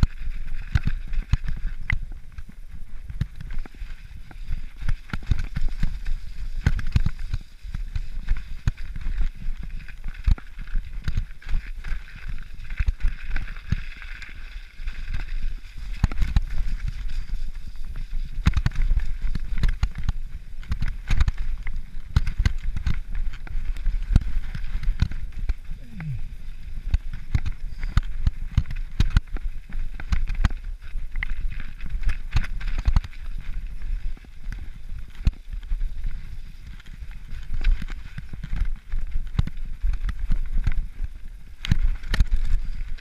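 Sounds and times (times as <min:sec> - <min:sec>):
bike knocks and rattles: 0:00.0 - 0:25.6
low rumble: 0:25.5 - 0:27.6.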